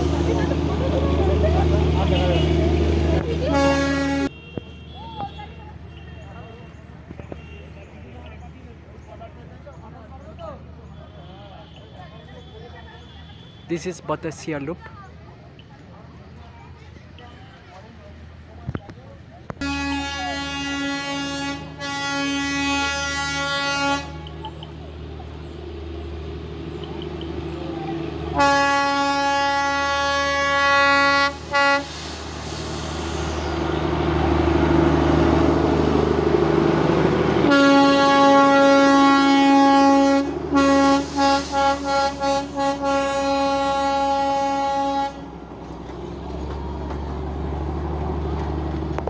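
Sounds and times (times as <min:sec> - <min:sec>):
locomotive engine running: 0:00.0 - 0:04.3, 0:19.4 - 0:49.0
train coaches rolling by: 0:00.0 - 0:49.0
train horn blasts: 0:03.5 - 0:05.0, 0:19.6 - 0:24.4, 0:28.3 - 0:32.2, 0:37.4 - 0:45.4.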